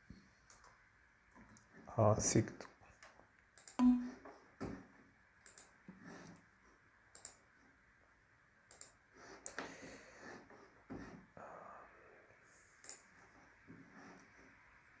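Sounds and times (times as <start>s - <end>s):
computer mouse clicks: 0.5s - 0.8s, 3.0s - 3.9s, 5.4s - 6.5s, 7.1s - 7.5s, 8.7s - 9.7s, 12.8s - 13.1s.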